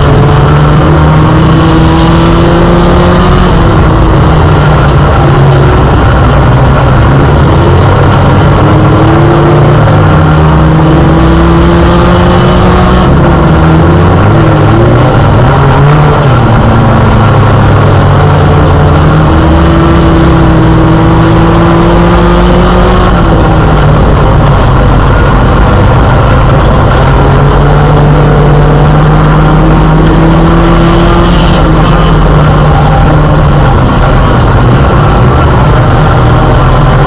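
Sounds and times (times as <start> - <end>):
race car engine running hard: 0.0 - 37.0.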